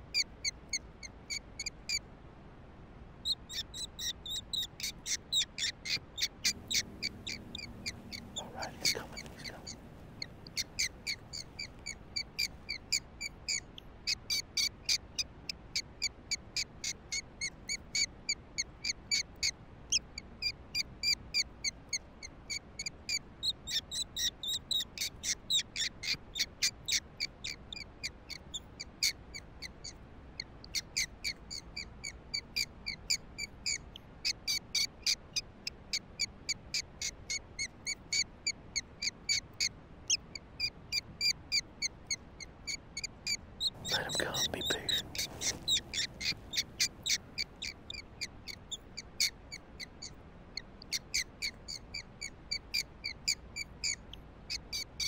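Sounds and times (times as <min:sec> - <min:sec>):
predator call squeaking: 0:03.5 - 0:13.7, 0:43.6 - 0:48.0.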